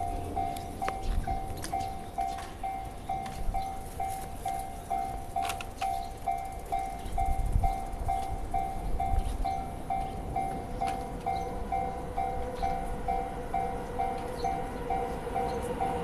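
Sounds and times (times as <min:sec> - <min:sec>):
level crossing warning bell ringing: 0:00.0 - 0:16.0.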